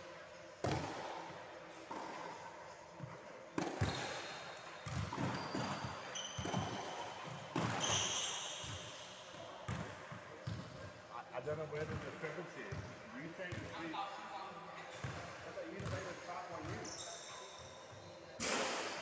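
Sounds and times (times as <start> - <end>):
tennis ball hits and bounces: 3.6 - 4.1
shoes squeaking on wooden floor: 3.8 - 8.8.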